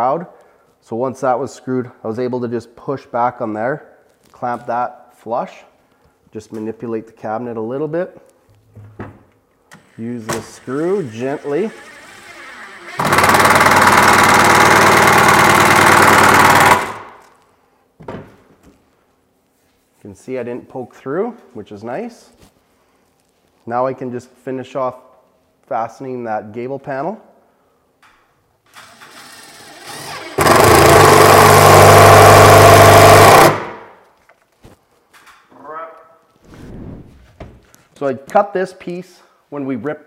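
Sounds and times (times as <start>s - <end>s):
impact driver rattling: 12.9s - 17.2s, 29.9s - 33.8s.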